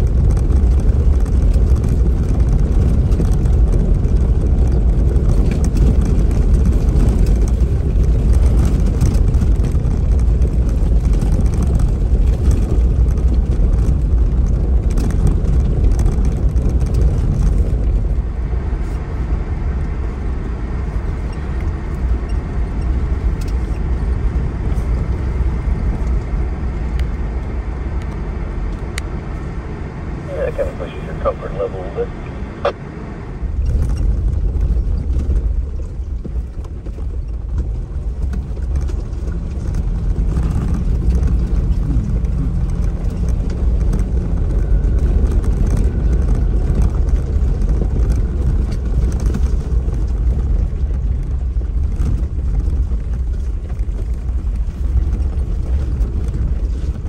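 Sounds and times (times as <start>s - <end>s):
engine and tyres rumbling: 0.0s - 57.0s.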